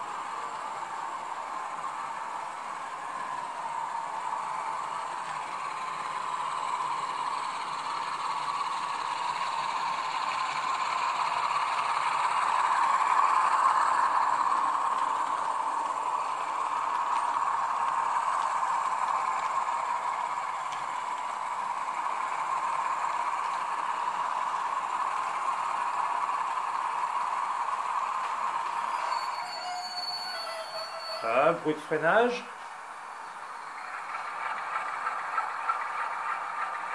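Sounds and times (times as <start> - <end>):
model diesel engine sound: 0.0 - 36.9
model train wheels clattering on track: 0.0 - 36.9.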